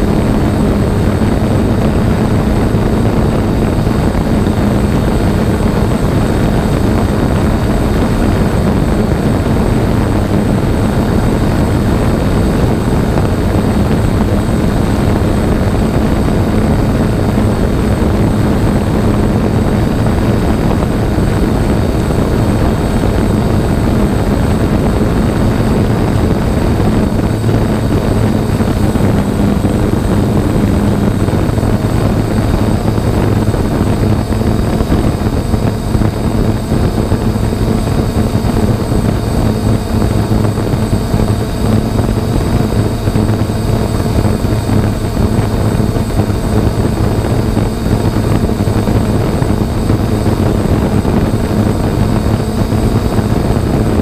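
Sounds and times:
drone propellers buzzing: 0.0s - 54.0s.

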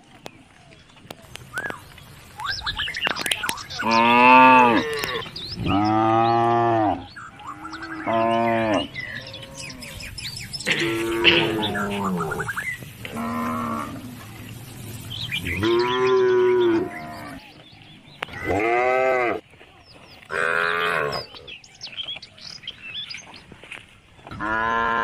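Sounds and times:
calves mooing: 3.8s - 10.0s, 10.6s - 14.4s, 15.4s - 17.6s, 18.4s - 19.4s, 20.3s - 21.4s, 24.3s - 25.0s.

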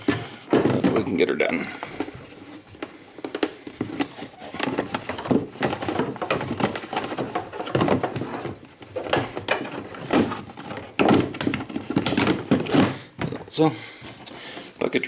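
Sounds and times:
plastic bucket being handled: 0.0s - 15.0s
plastic and cord clicks and knocks: 1.8s - 13.5s.

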